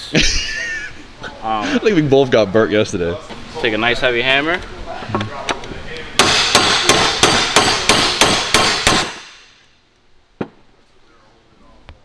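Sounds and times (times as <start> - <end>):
hammer striking steel plate: 6.2 - 9.6.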